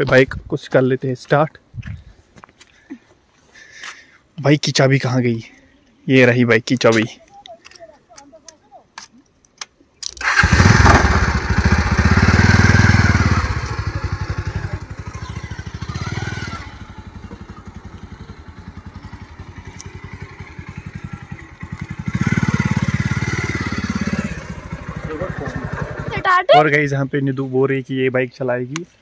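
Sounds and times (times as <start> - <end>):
motorcycle engine revving and idling: 10.2 - 26.5.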